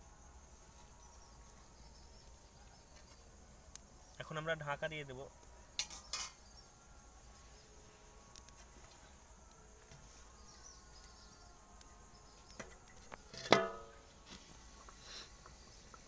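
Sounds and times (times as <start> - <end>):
faint insects: 0.0 - 16.0
metal cookware clank: 5.8 - 6.4, 13.4 - 13.9.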